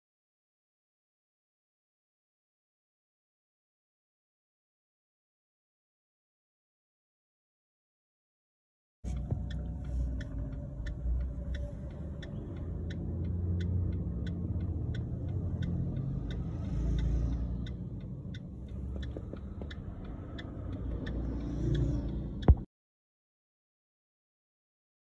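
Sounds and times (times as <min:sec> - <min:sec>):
vehicle engines rumbling: 0:09.0 - 0:22.7
steady light ticking: 0:09.1 - 0:22.7.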